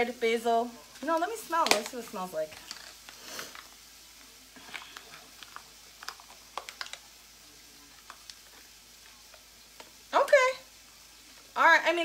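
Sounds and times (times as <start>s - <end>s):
plastic package crinkling: 0.9s - 3.9s, 4.6s - 10.0s.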